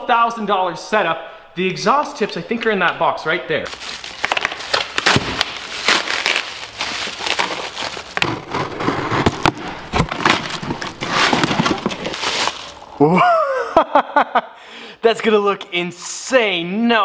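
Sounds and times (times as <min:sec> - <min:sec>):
plastic wrap crinkling: 0:03.7 - 0:13.0
scissors cutting packing tape: 0:04.0 - 0:12.8.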